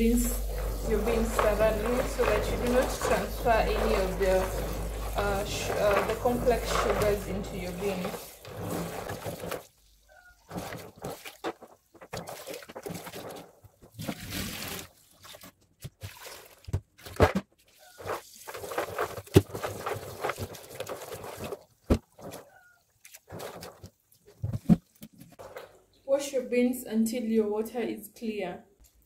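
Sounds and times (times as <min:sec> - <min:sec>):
hands swishing beans in water: 0:00.0 - 0:09.8, 0:10.4 - 0:25.7
tap water running into basin: 0:00.0 - 0:09.9.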